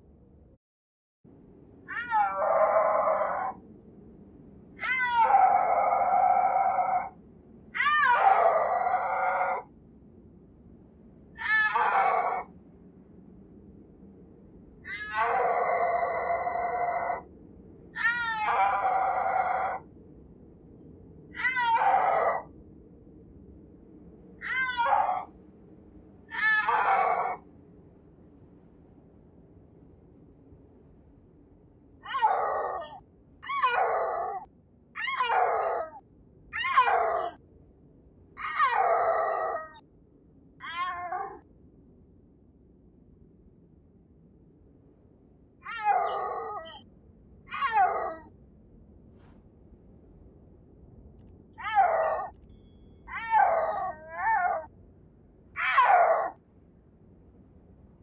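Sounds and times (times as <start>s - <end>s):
snow leopard yowling: 1.9s - 3.6s, 4.8s - 7.2s, 7.8s - 9.7s, 11.4s - 12.5s, 14.9s - 17.3s, 18.0s - 19.9s, 21.4s - 22.5s, 24.4s - 25.3s, 26.3s - 27.4s, 32.0s - 36.0s, 36.6s - 37.4s, 38.4s - 39.8s, 40.6s - 41.4s, 45.6s - 46.8s, 47.5s - 48.3s, 51.6s - 52.4s, 53.1s - 54.7s, 55.6s - 56.4s.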